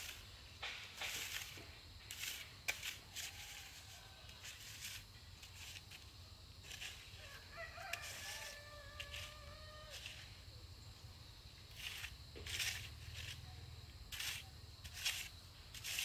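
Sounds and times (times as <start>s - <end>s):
faint rustling and scraping: 0.0s - 16.0s.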